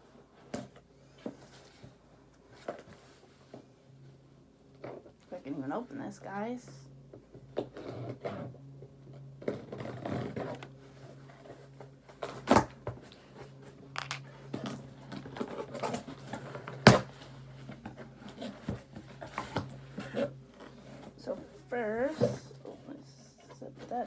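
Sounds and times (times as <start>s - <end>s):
low steady hum: 0.0s - 24.0s
packaging rustling and scraping: 7.4s - 24.0s.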